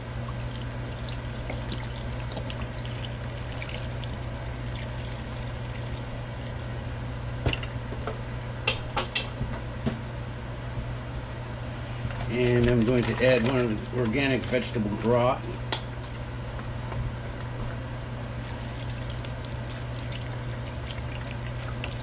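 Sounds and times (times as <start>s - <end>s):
liquid trickling into pot: 0.0s - 6.8s, 18.4s - 22.0s.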